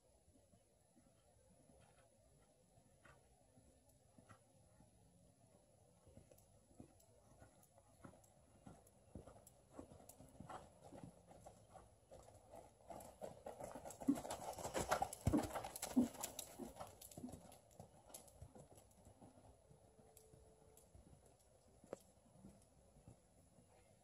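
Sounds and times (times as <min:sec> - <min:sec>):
horse hooves thudding on sand: 0:06.1 - 0:24.0.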